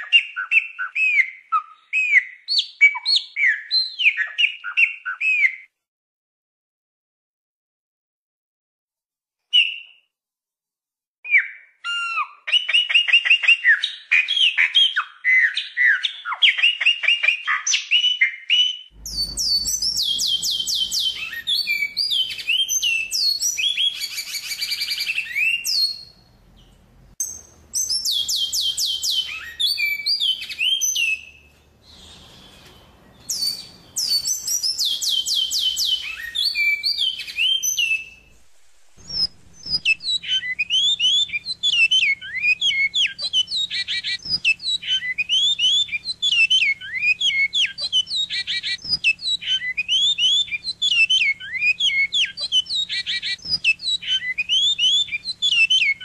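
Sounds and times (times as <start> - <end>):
bird descending whistled notes: 18.5 - 25.9, 33.3 - 42.9
songbird warbling trilled song: 19.0 - 38.2.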